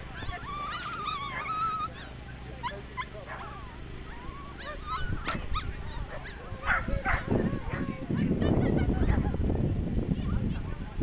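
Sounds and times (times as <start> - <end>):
dog whining: 0.2 - 7.9
dog yipping: 0.2 - 9.2.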